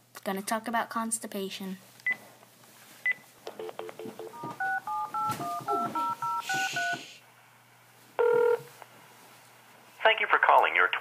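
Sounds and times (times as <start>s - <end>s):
touch-tone keypad beeps: 3.6s - 7.0s.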